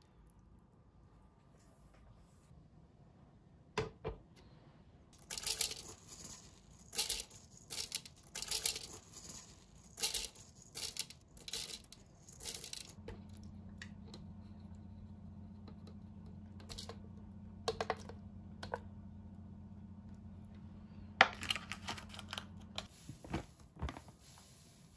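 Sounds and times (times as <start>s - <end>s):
low steady hum: 0.0s - 24.9s
rice grains rattling and scraping: 5.2s - 13.0s.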